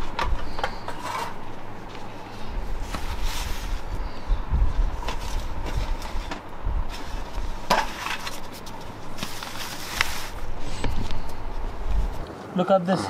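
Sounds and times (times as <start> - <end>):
low rumble: 1.5 - 7.7.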